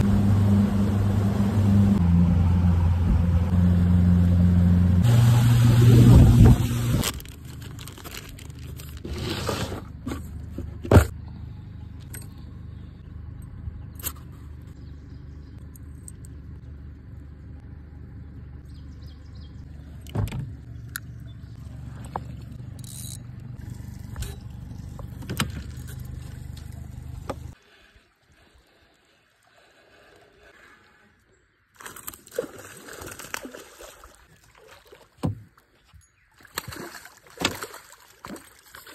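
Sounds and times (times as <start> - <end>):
outboard motor running: 0.0 - 27.8.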